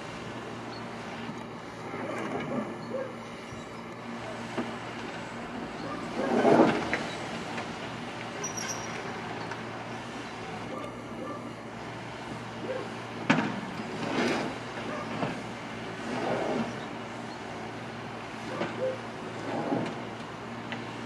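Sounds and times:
diesel engine running: 0.0s - 21.0s
steel scraping over asphalt: 3.4s - 7.6s, 13.8s - 17.3s.

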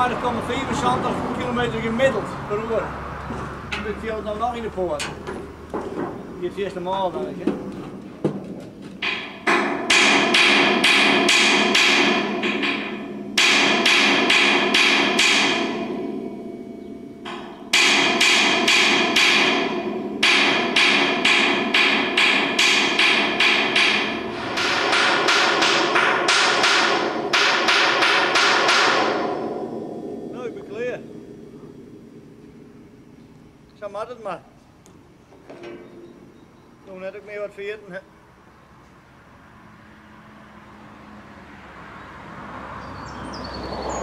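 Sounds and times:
hammer striking steel plates: 9.0s - 33.6s.

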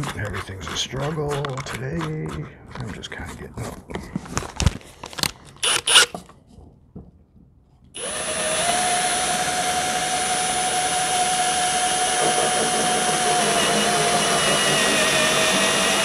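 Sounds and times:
drill chuck clicks and clatter: 4.5s - 6.2s, 8.0s - 16.0s
drill whining: 5.6s - 6.2s, 8.0s - 16.0s.

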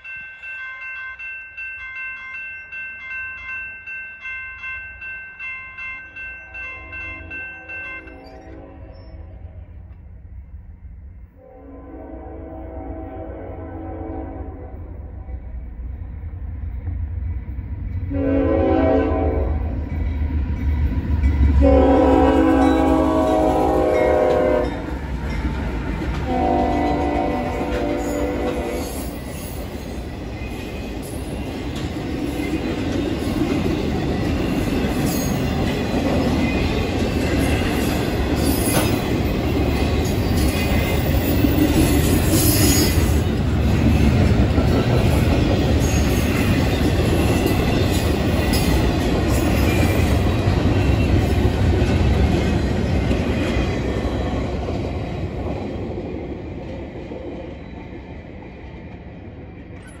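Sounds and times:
train wheels rumbling on rail: 8.0s - 60.0s
train clanks: 14.8s - 60.0s.

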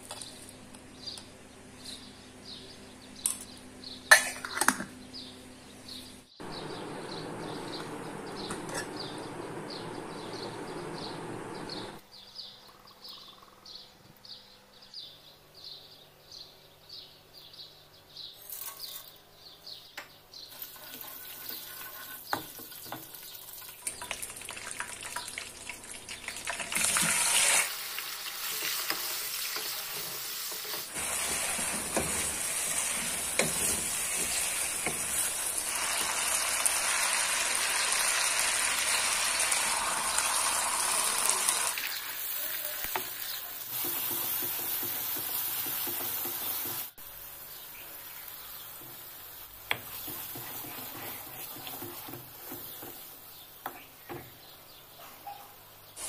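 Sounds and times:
food sizzling in hot oil: 20.5s - 53.3s
wooden spoon stirring: 28.6s - 35.6s, 49.7s - 53.1s.

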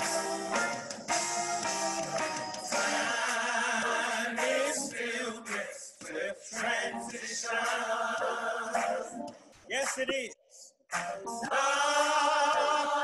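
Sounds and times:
voices singing a hymn: 2.6s - 9.3s, 11.3s - 13.0s.

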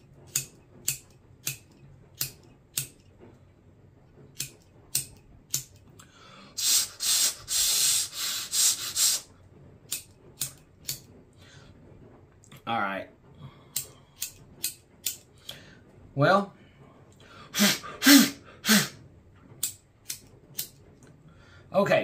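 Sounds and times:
lighter spark wheel clicks: 0.3s - 3.0s, 4.4s - 5.8s, 9.9s - 11.0s, 13.7s - 15.2s, 19.6s - 20.8s
hiss-like noise: 6.0s - 11.7s, 17.2s - 19.1s.

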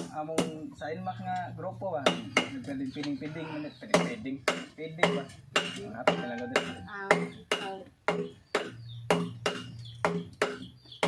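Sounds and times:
hammer striking steel on anvil: 4.0s - 10.7s.

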